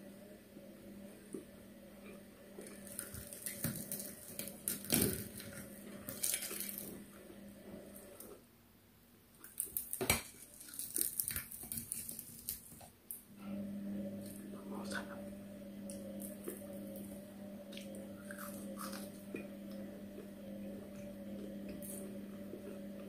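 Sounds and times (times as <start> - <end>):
steady low hum: 13.3 - 23.0.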